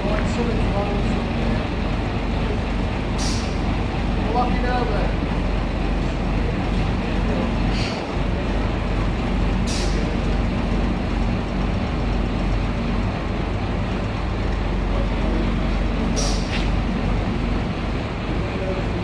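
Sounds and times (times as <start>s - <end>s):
bus diesel engine running: 0.0s - 19.0s
air brake hisses: 3.2s - 3.6s, 7.7s - 8.0s, 9.6s - 10.1s, 16.2s - 16.7s.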